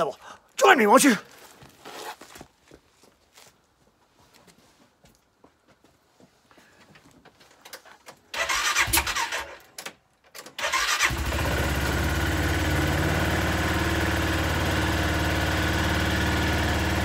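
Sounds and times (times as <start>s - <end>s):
electric starter cranking: 8.3s - 14.0s
engine idling: 10.7s - 17.0s.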